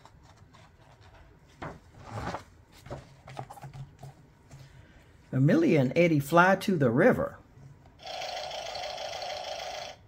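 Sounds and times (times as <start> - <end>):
book page rustling: 0.0 - 4.8.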